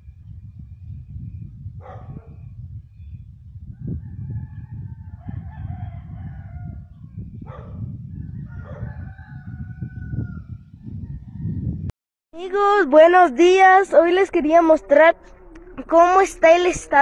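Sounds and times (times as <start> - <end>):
steady low rumble: 0.0 - 8.4, 9.4 - 17.0
rooster crowing: 3.9 - 6.9, 8.3 - 10.6.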